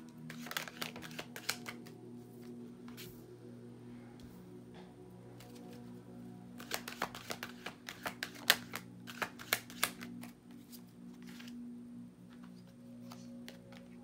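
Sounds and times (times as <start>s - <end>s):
quiet background music: 0.0s - 14.0s
cards being shuffled: 0.1s - 3.1s, 6.6s - 11.6s, 12.2s - 14.0s.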